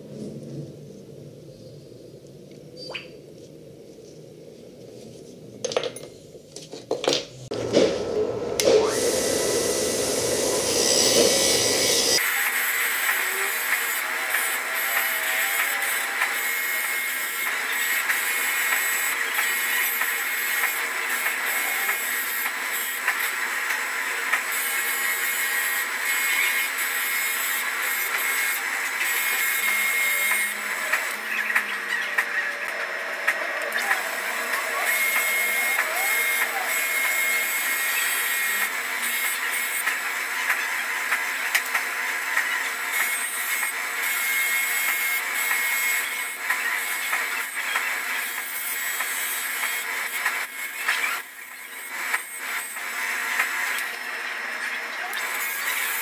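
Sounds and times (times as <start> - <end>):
bench grinder motor whine: 7.5 - 48.2.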